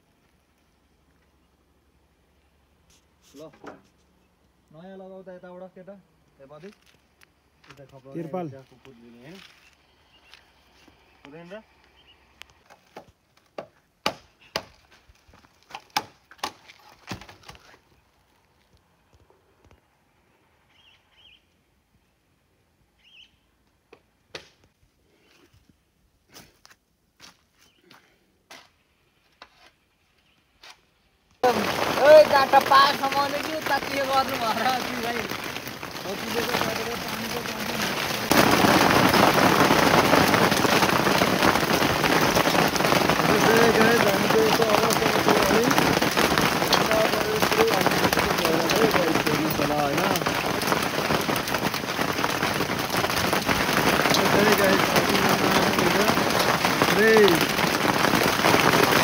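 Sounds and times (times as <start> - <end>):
hail and rain on tarpaulin: 7.6 - 9.6, 15.1 - 17.7, 31.4 - 59.0
bamboo being chopped: 12.7 - 15.0, 15.6 - 17.7.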